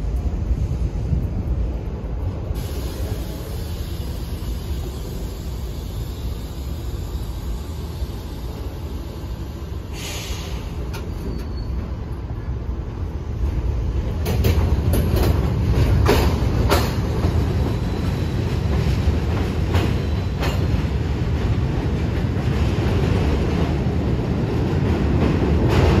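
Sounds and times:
subway train rumbling: 0:00.0 - 0:26.0
wheels clicking over rail joints: 0:13.4 - 0:23.4.

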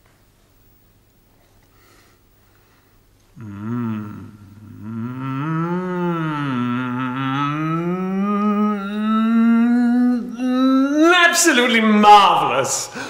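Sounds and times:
man moaning wordlessly: 0:03.4 - 0:13.0.

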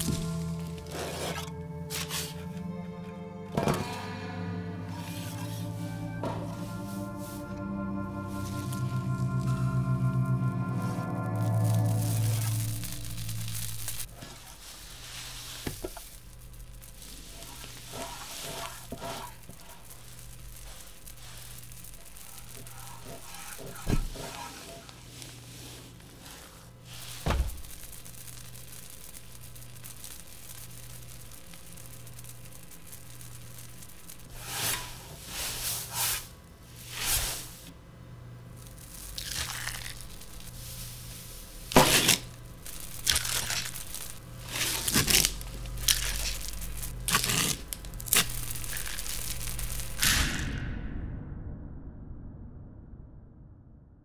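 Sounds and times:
crinkling and rustling: 0:00.0 - 0:02.7, 0:11.0 - 0:37.7, 0:38.6 - 0:50.0
low pulsing hum: 0:00.0 - 0:14.4.

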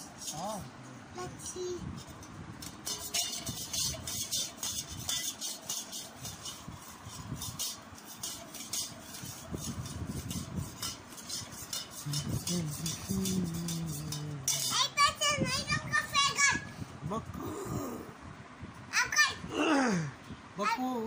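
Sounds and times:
spoon clinking in steel tumbler: 0:02.6 - 0:14.9.

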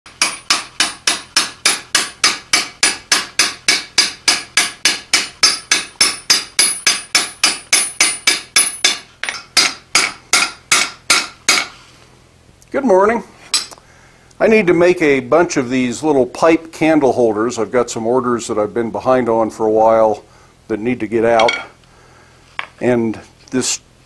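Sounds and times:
hammer striking metal: 0:00.1 - 0:11.7, 0:21.4 - 0:21.7.

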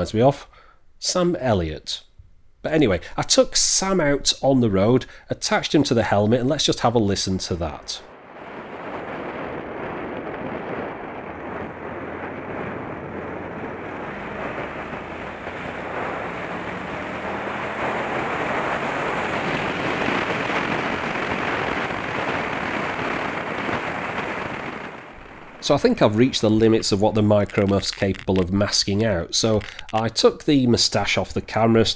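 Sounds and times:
wind buffeting microphone: 0:08.1 - 0:30.7.

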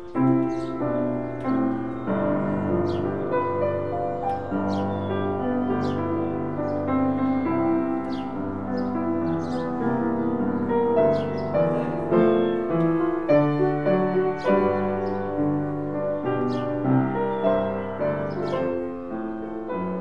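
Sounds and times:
upright piano playing chords: 0:00.0 - 0:20.0.

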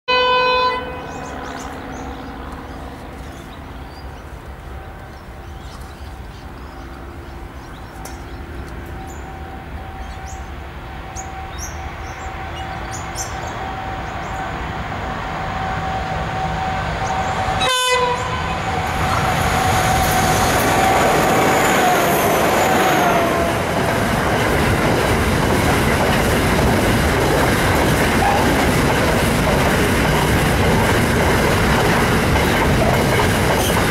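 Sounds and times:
locomotive horn blast: 0:00.1 - 0:01.4, 0:08.7 - 0:23.9
diesel engines droning and whining: 0:00.8 - 0:33.8
train wagons rumbling and clattering: 0:01.3 - 0:33.9.

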